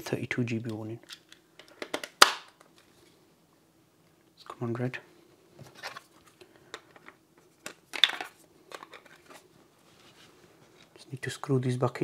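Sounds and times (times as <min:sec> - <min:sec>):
plastic clicks and rustles: 0:05.7 - 0:09.4.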